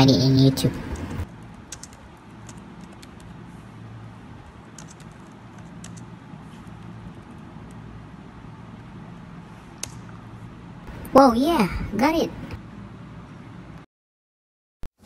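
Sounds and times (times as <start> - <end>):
low background hum: 0.0 - 13.8
computer keyboard typing: 0.9 - 3.4, 4.6 - 7.8.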